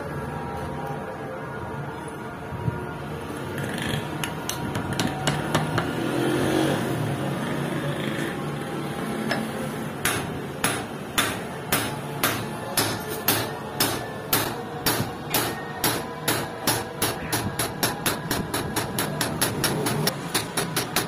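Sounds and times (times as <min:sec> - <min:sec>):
hammer striking steel disc: 0:09.3 - 0:21.0.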